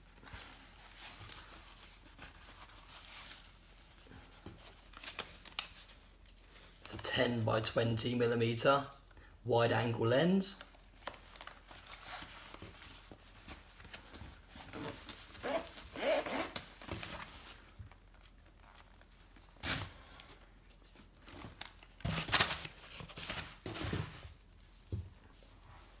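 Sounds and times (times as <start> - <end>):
zipper zipping: 14.7 - 16.7.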